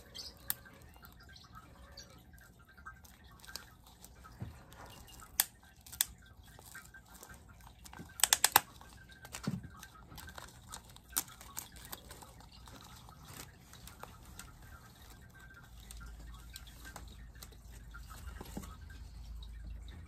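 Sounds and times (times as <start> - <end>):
paper wrapping crinkling and tearing: 0.0 - 20.0.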